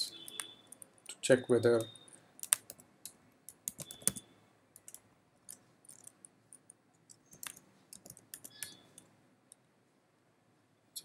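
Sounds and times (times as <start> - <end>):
keyboard keys clicking: 0.0 - 2.9, 3.5 - 4.2, 4.8 - 9.1.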